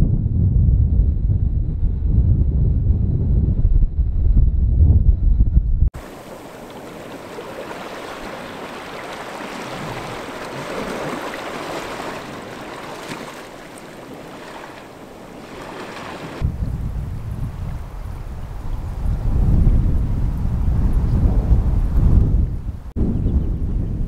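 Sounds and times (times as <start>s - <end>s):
wind buffeting microphone: 0.0s - 24.0s
ripples lapping on sandy shore: 6.0s - 16.4s.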